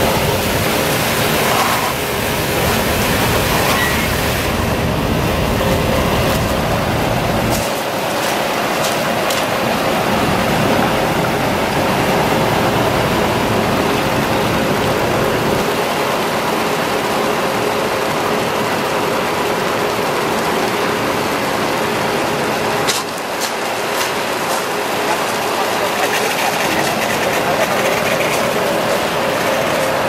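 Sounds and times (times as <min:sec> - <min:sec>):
pump and engine hum: 0:00.0 - 0:30.0
water spraying onto gravel: 0:06.2 - 0:10.2, 0:22.8 - 0:30.0.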